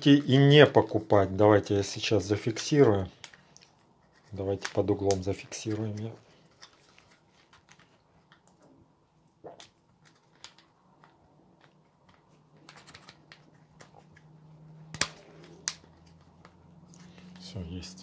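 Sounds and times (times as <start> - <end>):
plastic cable chain clicking and rattling: 9.9 - 14.3.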